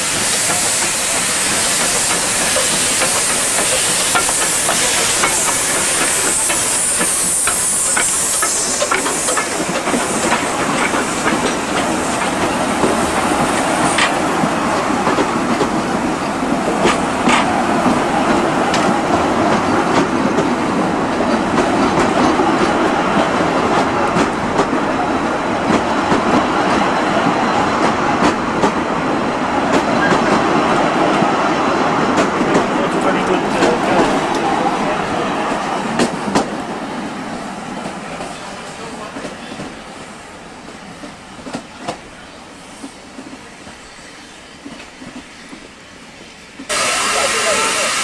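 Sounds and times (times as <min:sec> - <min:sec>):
steam hissing: 0:00.0 - 0:24.3, 0:46.5 - 0:48.0
train wheels clicking over rail joints: 0:00.0 - 0:25.0, 0:32.0 - 0:34.6, 0:35.6 - 0:36.7.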